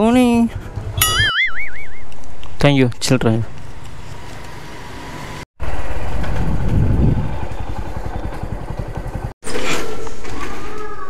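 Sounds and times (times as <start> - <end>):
motorcycle engine running: 5.6 - 9.4.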